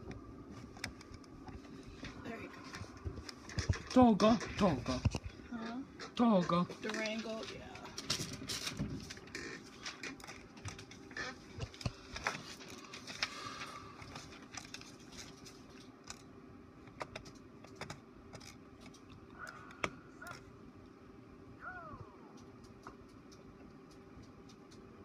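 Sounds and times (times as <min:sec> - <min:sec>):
steady low hum: 0:00.0 - 0:25.0
computer mouse clicking: 0:22.4 - 0:25.0.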